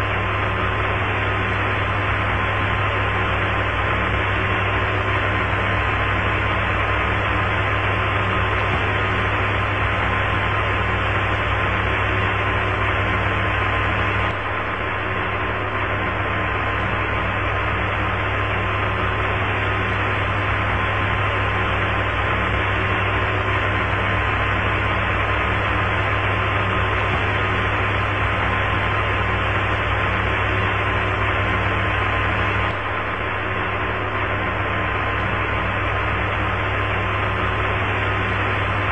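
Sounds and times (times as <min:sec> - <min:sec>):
low hum: 0:00.0 - 0:38.9.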